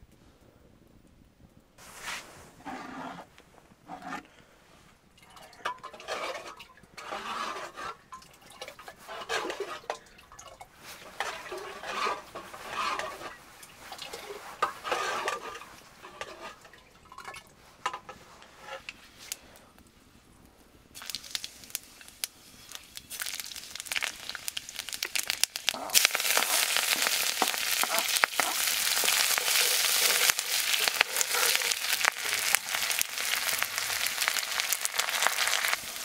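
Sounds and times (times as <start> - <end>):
metal ladle scraping metal kettle: 2.6 - 3.3, 3.9 - 4.3, 5.2 - 10.0, 10.8 - 19.0, 24.8 - 36.0.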